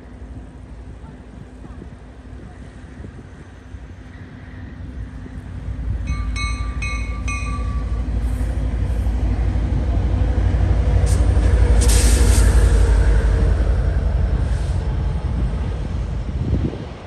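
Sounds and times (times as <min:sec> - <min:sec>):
train wheels rumbling on rail: 0:00.0 - 0:17.0
locomotive hiss: 0:07.6 - 0:16.0.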